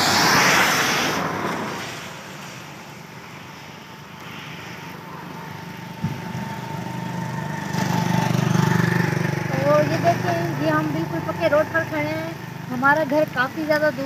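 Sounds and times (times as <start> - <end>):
tyre noise on wet road: 0.0 - 14.0
vehicle engine hum: 0.0 - 14.0.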